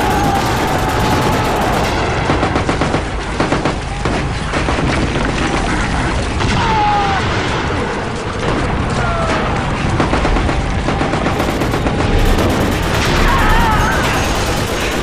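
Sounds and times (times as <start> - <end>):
rifle and machine-gun fire: 0.0 - 6.6, 7.5 - 15.0.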